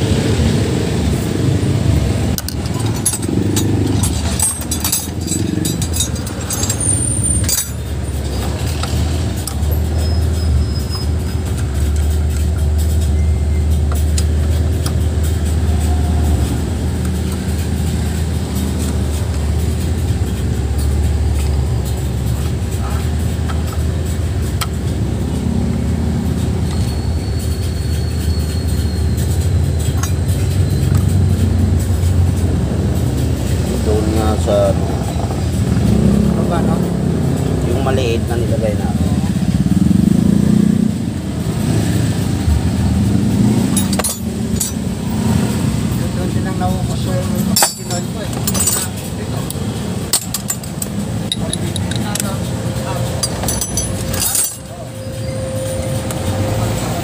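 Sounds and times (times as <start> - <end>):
metallic clinks of hand tools: 2.3 - 33.6, 43.0 - 56.4.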